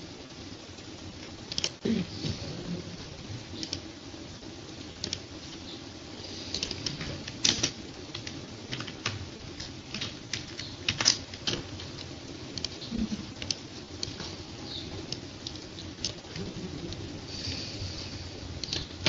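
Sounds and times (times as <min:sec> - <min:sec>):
keyboard and mouse clicking: 0:01.5 - 0:01.8, 0:03.6 - 0:03.9, 0:05.0 - 0:05.2, 0:06.5 - 0:14.4, 0:18.6 - 0:19.0.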